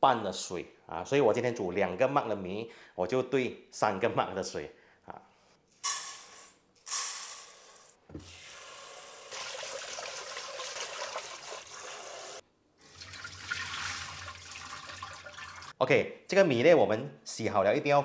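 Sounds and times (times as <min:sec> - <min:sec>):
tap water running into pot: 0:08.1 - 0:15.8.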